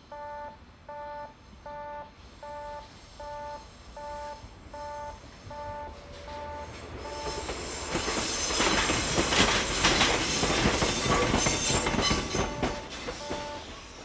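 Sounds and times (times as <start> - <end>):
wheels clattering over rail joints: 6.1 - 14.0
high wheel squeal: 6.2 - 14.0.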